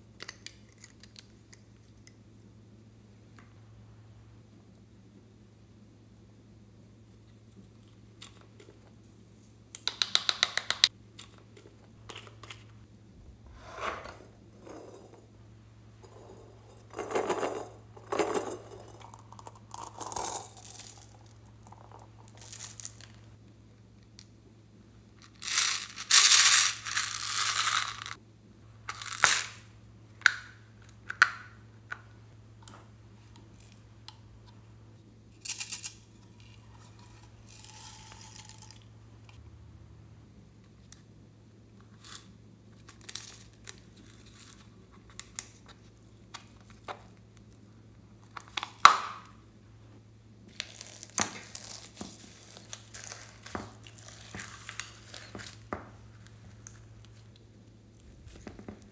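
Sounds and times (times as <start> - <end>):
beads rattling and clattering: 16.0 - 23.2, 25.4 - 28.2, 37.3 - 38.8, 50.6 - 55.6.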